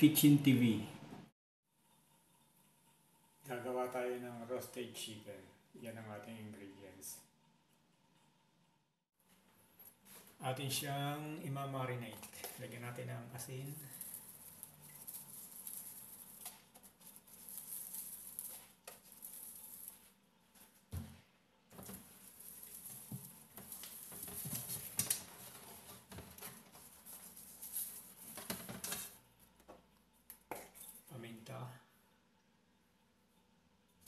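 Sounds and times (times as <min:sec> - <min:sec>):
salt grains pattering: 0:13.6 - 0:20.2.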